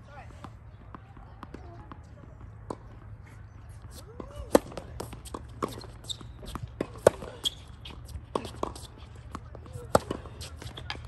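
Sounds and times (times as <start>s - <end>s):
racket striking tennis ball: 3.9s - 11.0s.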